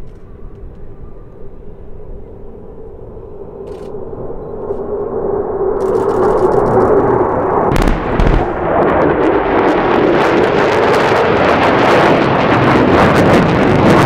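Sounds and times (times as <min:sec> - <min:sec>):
jet engines passing low: 0:00.0 - 0:14.0
low explosion booms: 0:07.1 - 0:14.0.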